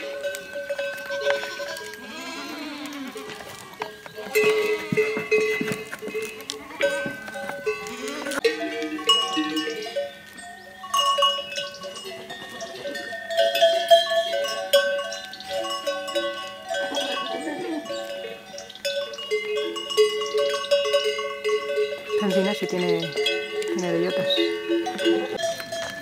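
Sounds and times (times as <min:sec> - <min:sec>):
goat bells clanking: 0:00.0 - 0:26.0
goat bleating: 0:01.0 - 0:08.4.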